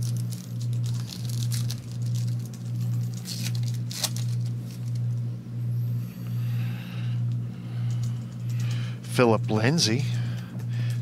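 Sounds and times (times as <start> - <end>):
foil wrapper crinkling and tearing: 0.0 - 5.2
pulsing low hum: 0.0 - 11.0.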